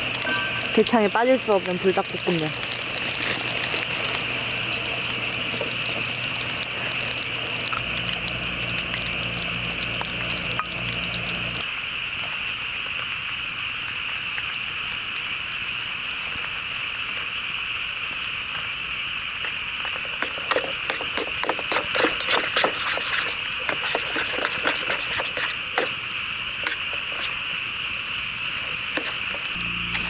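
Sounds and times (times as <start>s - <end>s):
sharp crackling and popping: 0.0s - 30.0s.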